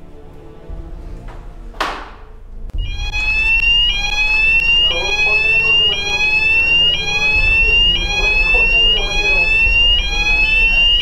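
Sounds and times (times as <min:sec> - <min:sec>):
electronic alarm rising tone: 0:02.7 - 0:11.0.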